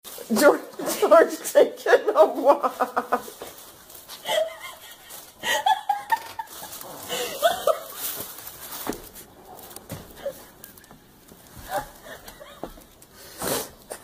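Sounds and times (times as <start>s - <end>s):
person laughing softly: 4.2s - 8.4s, 10.0s - 12.9s.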